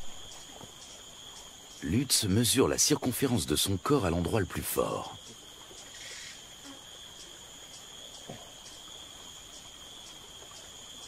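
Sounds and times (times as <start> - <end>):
insects droning: 0.0 - 11.0
soft tap: 8.2 - 8.5.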